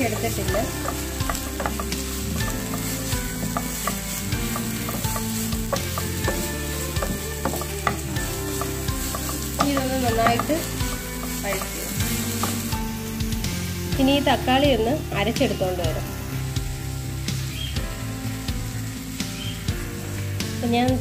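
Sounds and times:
spatula scraping and tapping pan: 0.0s - 12.8s
onions sizzling in oil: 0.0s - 21.0s.

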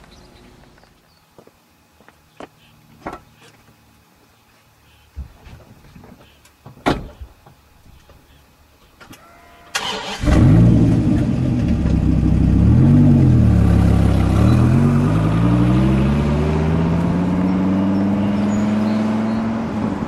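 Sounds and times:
sports car engine revving: 10.2s - 20.0s.

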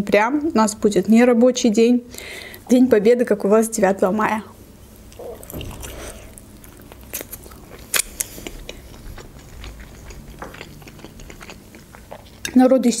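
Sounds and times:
wet chewing mouth sounds: 5.0s - 12.6s
crunchy clicks of chewing: 5.1s - 12.6s.

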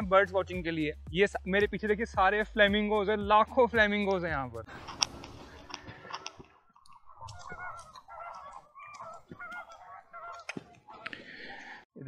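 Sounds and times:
flamingos honking: 4.7s - 11.8s
faint clicks: 4.8s - 11.2s.

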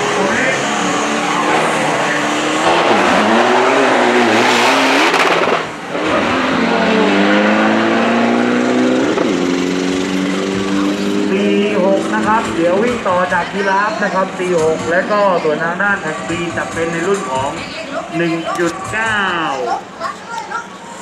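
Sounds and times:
diesel engines revving hard: 0.0s - 17.7s.

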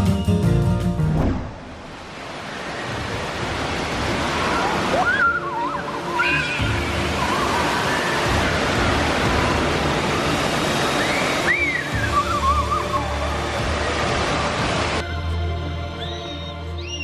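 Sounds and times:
roar of falling water: 1.2s - 15.0s
children shrieking: 4.8s - 9.4s.

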